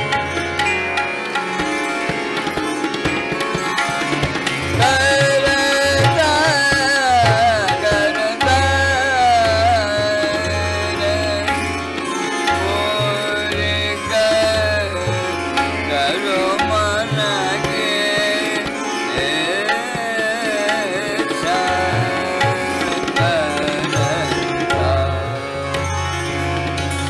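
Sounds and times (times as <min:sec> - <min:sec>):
tabla playing: 0:00.0 - 0:27.0.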